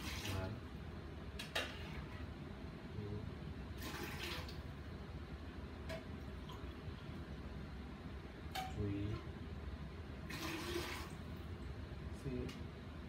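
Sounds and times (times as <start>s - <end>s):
water pouring into plastic pitcher: 3.8s - 4.6s, 10.3s - 11.2s.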